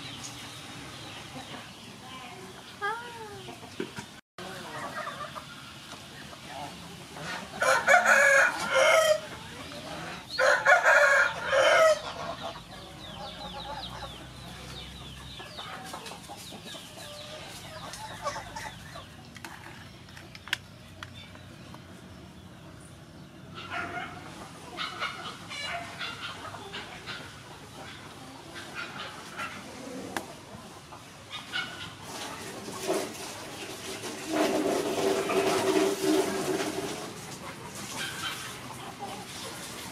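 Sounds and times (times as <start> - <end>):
chickens clucking: 0.0 - 39.9
rooster crowing: 7.6 - 9.3, 10.4 - 12.1.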